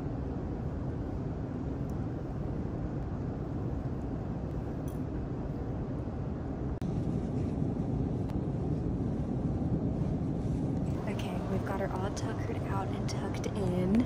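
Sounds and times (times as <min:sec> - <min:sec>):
airport terminal rumble: 0:10.8 - 0:14.0.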